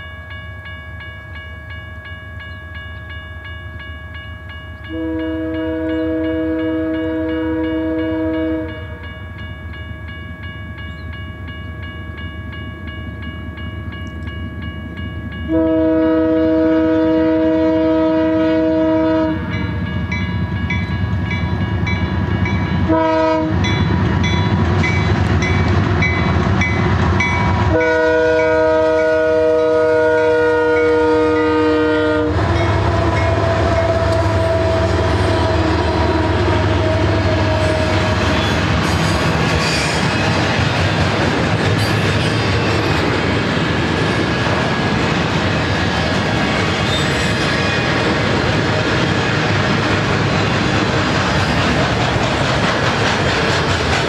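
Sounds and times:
clickety-clack of rail cars: 2.4 - 54.0
locomotive air horn: 4.9 - 9.0, 15.5 - 19.7, 22.8 - 23.7, 27.7 - 38.6.

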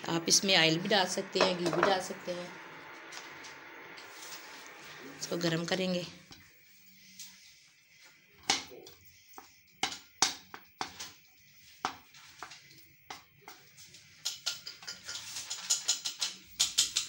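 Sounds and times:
spatula tapping metal pan: 9.4 - 11.2, 11.8 - 12.5, 13.1 - 13.6.

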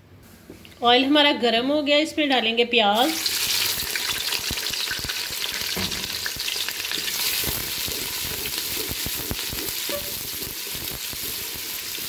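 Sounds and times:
onions sizzling in hot oil: 3.0 - 12.0.

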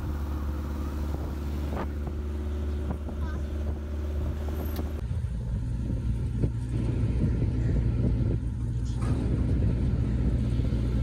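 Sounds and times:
truck engine and road rumble: 0.0 - 11.0.

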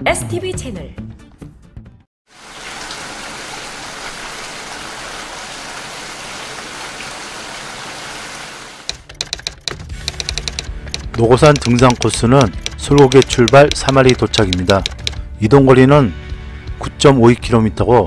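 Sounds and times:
rain falling: 2.3 - 8.9
fast sharp clicks: 8.8 - 15.2.

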